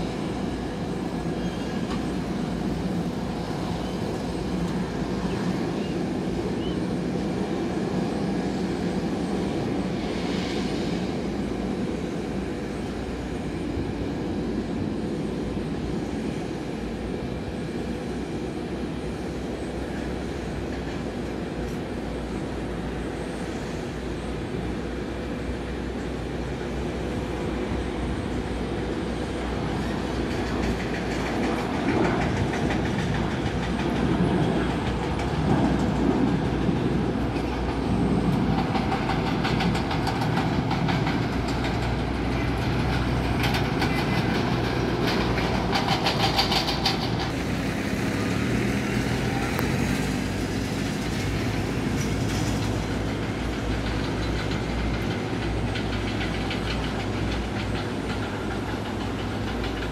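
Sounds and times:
jet engine rumble: 0.0s - 59.9s.

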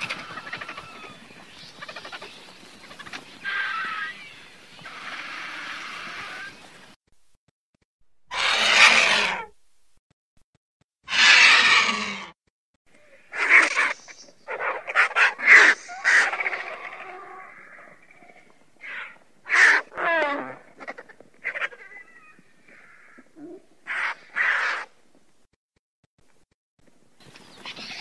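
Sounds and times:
vultures calling: 0.0s - 6.9s, 8.3s - 9.6s, 11.0s - 25.0s.

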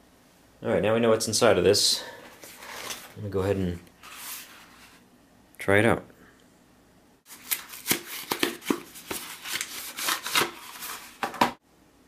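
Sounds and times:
plastic packaging crinkling: 7.3s - 11.2s.

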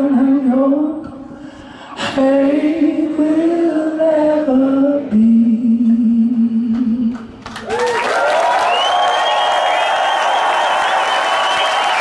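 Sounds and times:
crowd cheering: 7.6s - 12.0s.

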